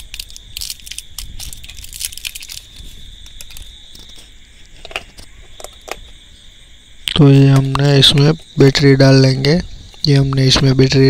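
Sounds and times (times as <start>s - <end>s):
plastic wrapper crinkling: 0.0s - 6.0s
faint high whine: 0.0s - 11.0s.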